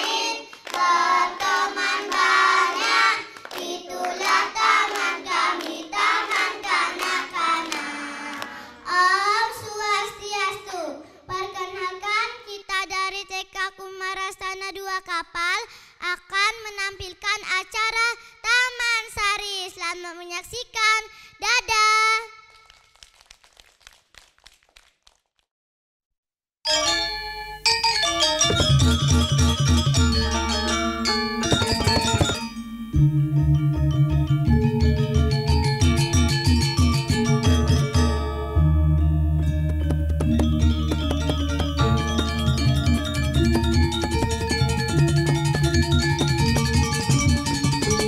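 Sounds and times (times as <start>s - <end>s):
hand claps: 0.0s - 0.9s, 3.2s - 6.0s, 7.0s - 8.5s, 31.4s - 32.4s, 39.7s - 42.0s, 42.9s - 47.8s
children singing in unison: 0.0s - 9.4s
girl singing into microphone: 8.7s - 11.6s.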